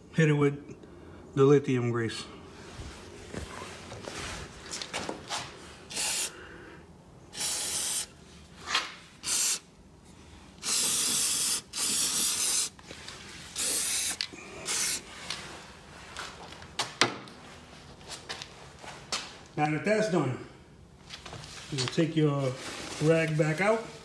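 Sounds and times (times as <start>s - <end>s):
aerosol spray hissing: 5.9s - 6.3s, 7.3s - 8.1s, 9.2s - 9.7s, 10.6s - 12.8s, 13.5s - 15.1s.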